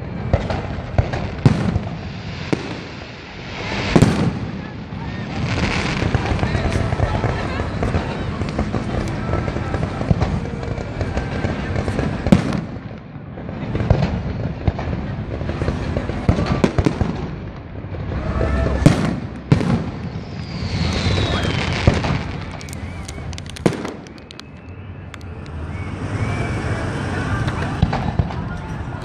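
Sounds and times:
falling firework whistle: 0.0s - 12.8s, 18.1s - 28.5s
firework bangs: 0.0s - 29.0s
fireworks pops and crackles: 0.0s - 29.0s.

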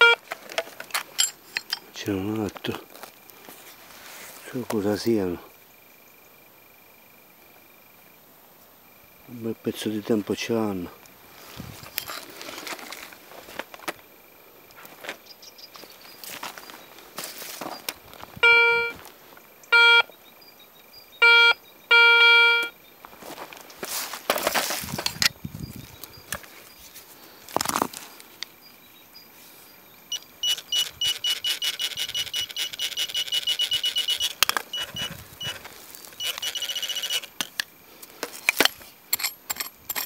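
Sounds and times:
metal detector high beeping: 0.0s - 0.2s, 18.4s - 19.0s, 19.7s - 20.1s, 21.2s - 22.8s, 30.1s - 37.4s
metal detector low beeps: 0.0s - 0.2s, 18.4s - 19.0s, 19.7s - 20.1s, 21.2s - 22.8s, 30.1s - 37.3s
scuffing in dirt: 2.3s - 4.7s, 11.3s - 14.0s, 14.7s - 19.4s, 23.0s - 28.3s.

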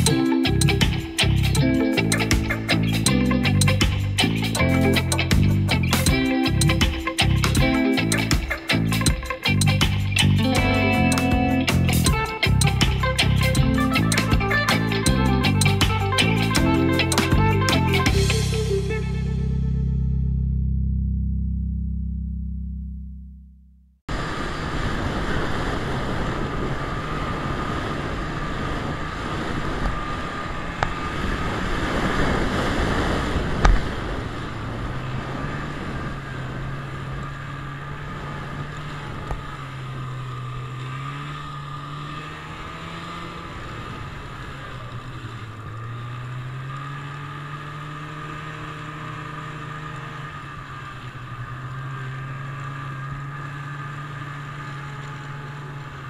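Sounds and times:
steady high whine: 0.0s - 31.8s
snowmobile engine running: 24.2s - 56.0s.

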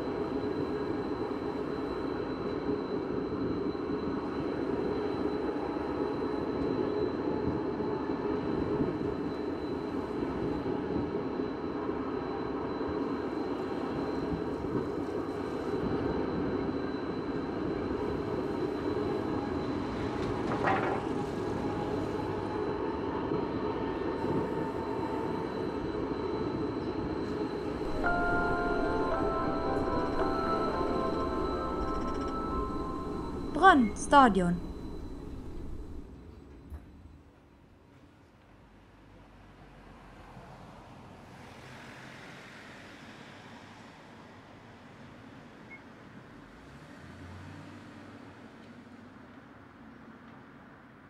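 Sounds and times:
tram rolling on track: 0.0s - 37.4s
steady tones: 27.8s - 36.1s.

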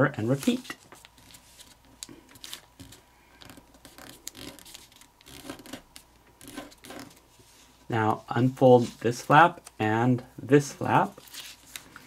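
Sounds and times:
paper rustling while folded: 0.2s - 7.8s, 10.8s - 12.0s
paper creasing ticks: 2.8s - 7.2s.

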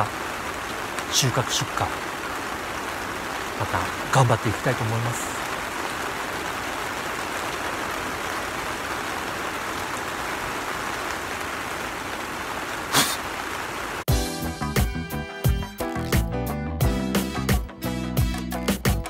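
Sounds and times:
rain on plastic film: 0.0s - 14.1s, 15.5s - 16.3s
music: 14.1s - 19.0s.

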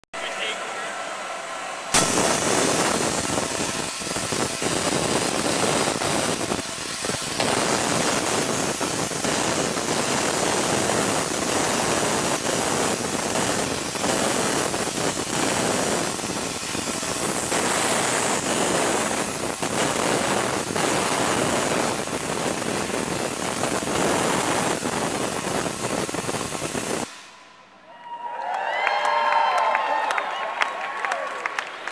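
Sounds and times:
tesla coil crackling buzz: 1.9s - 27.8s.

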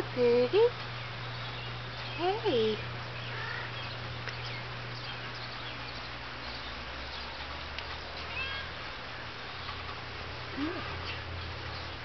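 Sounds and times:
steady low hum: 0.0s - 12.0s
cat meowing: 8.3s - 8.8s.

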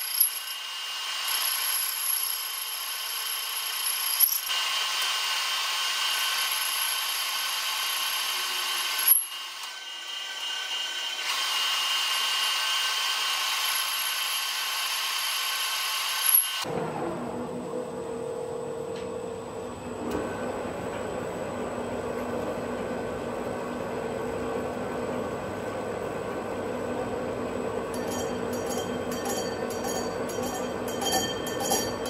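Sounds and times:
metal lathe cutting whine: 0.0s - 18.0s.

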